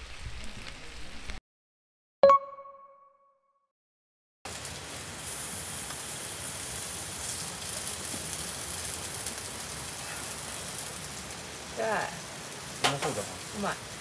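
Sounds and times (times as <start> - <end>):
food sizzling in a pan: 4.5 - 14.0.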